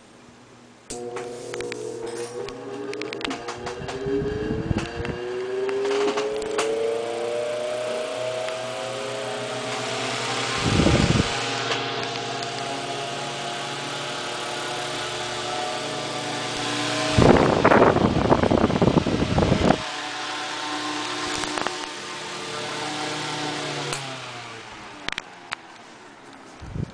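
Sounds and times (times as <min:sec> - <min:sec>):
electric fan motor hum: 0:00.6 - 0:26.9
air buffeting microphone: 0:02.6 - 0:05.4, 0:09.8 - 0:12.6, 0:16.9 - 0:19.8, 0:26.5 - 0:26.9.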